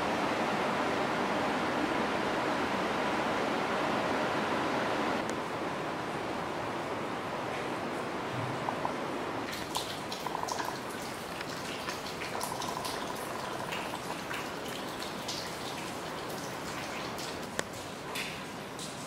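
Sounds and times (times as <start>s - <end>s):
steady rain: 0.0s - 19.0s
water dripping and splashing: 8.7s - 19.0s.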